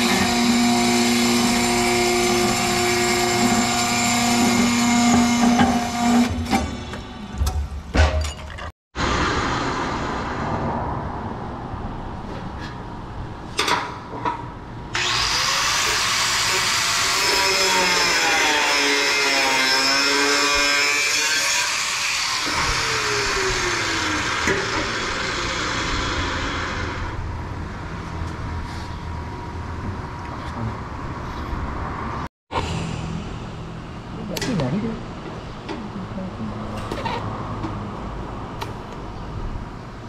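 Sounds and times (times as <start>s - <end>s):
power tool hissing and whining: 15.0s - 27.2s.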